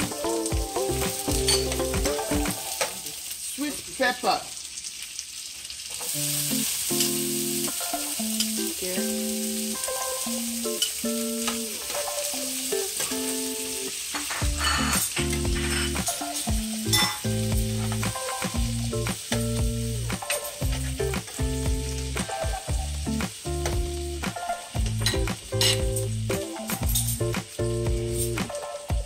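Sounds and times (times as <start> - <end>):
background music: 0.0 - 3.1, 6.2 - 29.0
vegetables sizzling in oil: 0.0 - 29.0
metal spoon scraping pan: 14.1 - 16.1.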